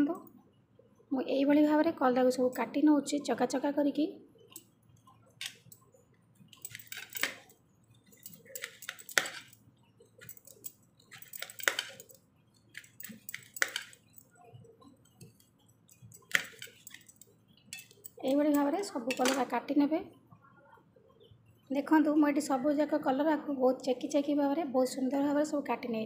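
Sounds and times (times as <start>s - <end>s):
knife clinking on steel plate: 6.6s - 7.5s, 8.1s - 9.6s, 10.2s - 12.2s, 12.8s - 14.3s, 15.2s - 19.5s.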